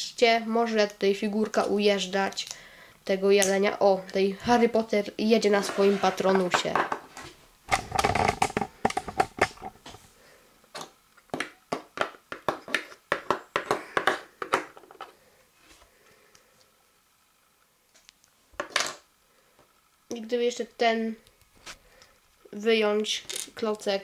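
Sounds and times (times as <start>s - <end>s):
plastic bricks clicking on a desk: 7.7s - 9.8s.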